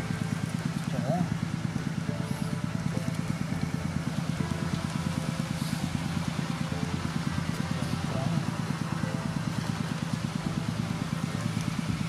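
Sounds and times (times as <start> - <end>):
small engine idling: 0.0 - 12.0.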